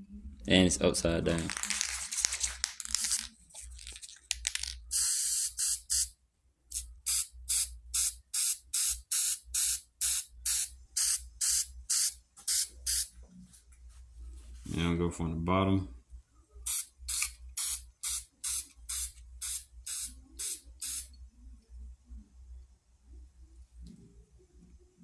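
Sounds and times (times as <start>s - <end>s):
spray can hissing: 16.7s - 21.1s.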